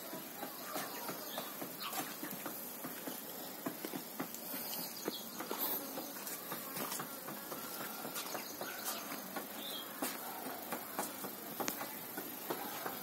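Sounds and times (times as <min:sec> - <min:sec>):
chicks peeping: 0:00.1 - 0:03.2
scattered clicks and taps: 0:00.1 - 0:13.0.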